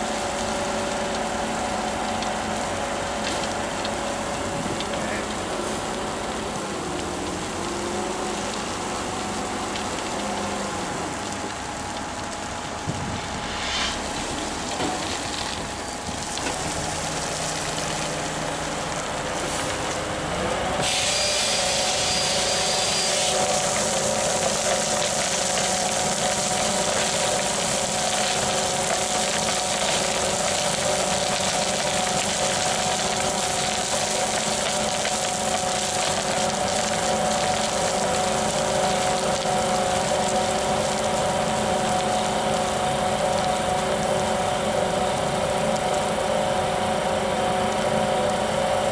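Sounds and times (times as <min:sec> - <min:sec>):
steady machine hum: 0:00.0 - 0:24.6
soil and gravel pouring: 0:00.0 - 0:46.3.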